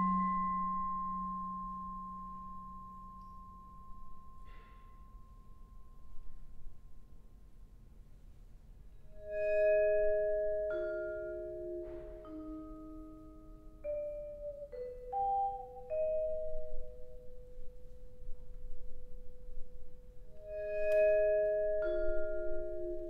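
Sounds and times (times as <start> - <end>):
vibraphone notes ringing: 9.3 - 18.3.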